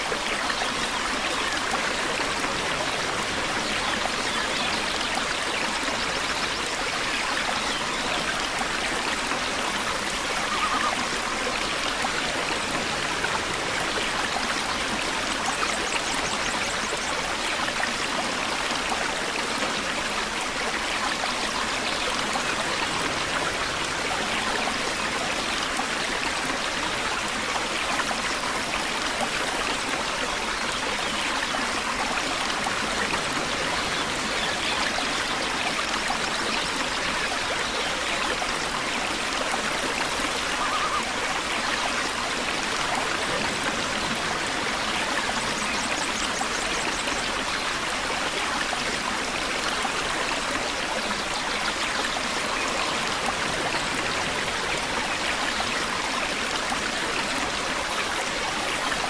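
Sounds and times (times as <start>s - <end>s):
waterfall rushing: 39.7s - 45.7s.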